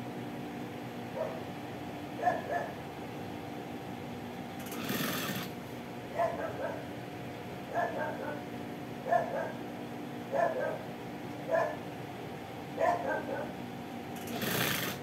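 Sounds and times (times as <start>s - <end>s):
dog barking in yelps: 1.2s - 1.5s, 2.2s - 2.8s, 6.2s - 6.9s, 7.7s - 9.6s, 10.3s - 10.9s, 11.5s - 11.8s, 12.8s - 13.6s
sewing machine stitching: 4.6s - 5.5s, 14.2s - 15.0s
sewing machine humming: 4.6s - 5.6s, 14.1s - 15.0s.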